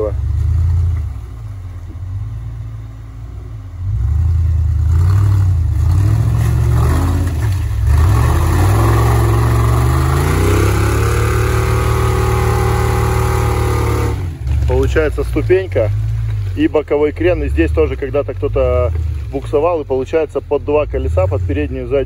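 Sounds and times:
off-road engine revving hard: 3.8s - 16.3s.

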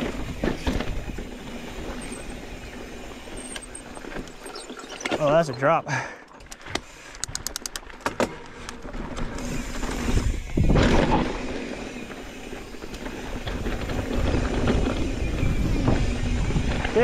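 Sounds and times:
bike tyres crunching over dirt: 0.0s - 5.7s, 7.8s - 17.0s
quick clicks: 6.4s - 8.0s
wind on the microphone: 9.4s - 11.2s, 13.4s - 17.0s.

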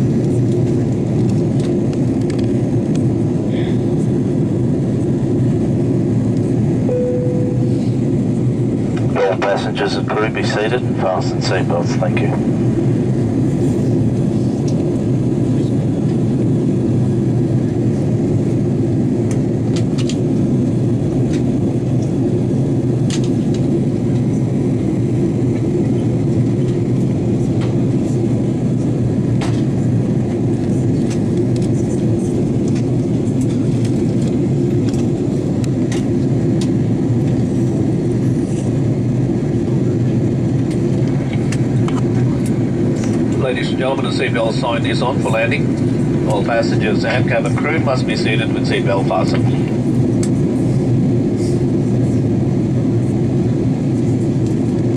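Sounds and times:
aircraft cabin engine rumble: 0.0s - 54.9s.

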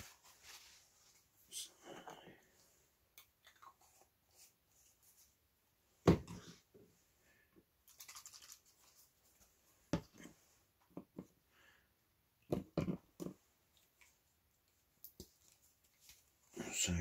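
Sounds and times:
paint pots knocking on a mat: 12.5s - 13.4s.

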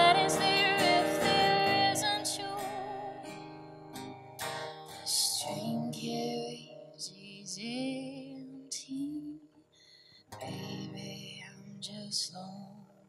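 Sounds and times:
woman singing: 0.0s - 3.4s, 5.1s - 9.4s, 10.4s - 13.0s
strummed acoustic guitar: 0.0s - 7.0s, 10.3s - 11.5s
singer breathing: 9.7s - 10.4s.

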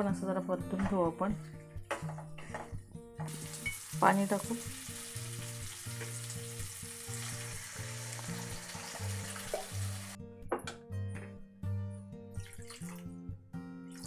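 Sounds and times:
food sizzling in hot oil: 3.3s - 10.2s.

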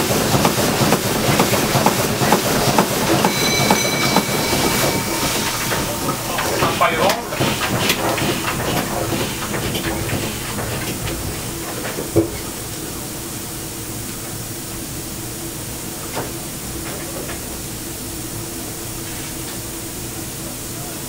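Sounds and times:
steam engine rhythmic beat: 0.0s - 10.4s
steam hum and hiss: 0.0s - 21.0s.

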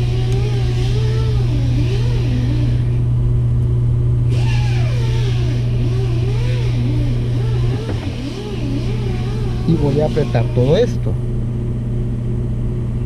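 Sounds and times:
sewing machine motor humming: 0.0s - 3.0s, 4.3s - 11.2s.

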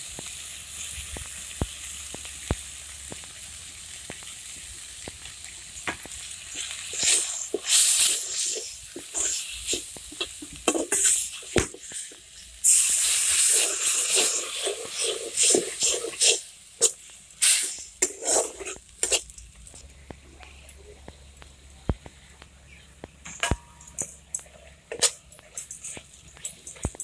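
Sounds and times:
frying sizzling hiss: 0.0s - 27.0s
metal spatula scraping pan: 6.6s - 12.4s, 13.3s - 19.3s.

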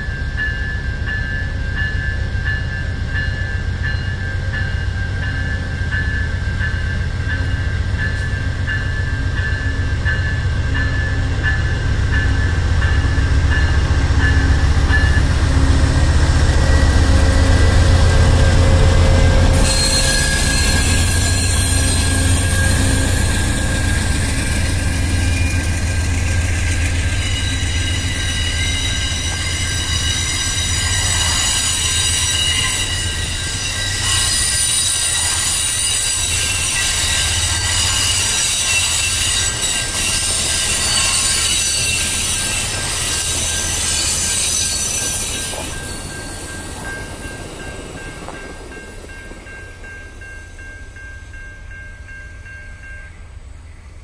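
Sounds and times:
crossing bell ringing: 0.0s - 54.0s
diesel locomotive engine: 0.0s - 54.0s
train brakes and wheels squealing: 16.2s - 54.0s.

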